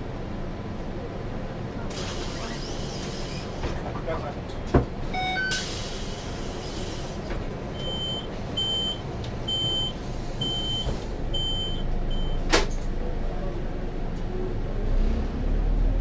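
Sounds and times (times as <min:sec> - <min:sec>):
bus engine idling: 0:00.0 - 0:14.8
door warning beeps: 0:05.2 - 0:05.7, 0:07.8 - 0:12.5
bus door shutting clunk: 0:10.7 - 0:11.2, 0:12.4 - 0:13.0.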